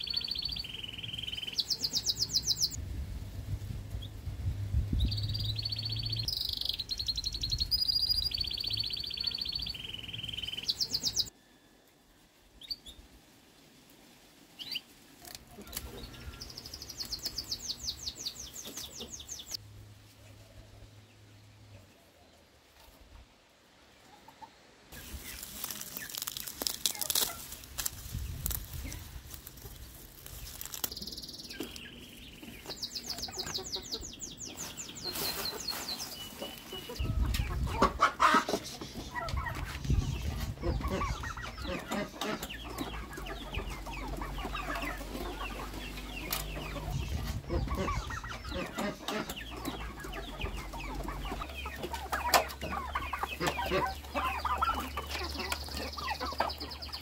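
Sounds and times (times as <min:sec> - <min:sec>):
chickens clucking: 0:00.0 - 0:02.8, 0:06.2 - 0:11.3, 0:14.6 - 0:19.6, 0:24.0 - 0:57.0
leaves rustling: 0:00.6 - 0:05.3, 0:12.0 - 0:21.0, 0:22.4 - 0:48.7.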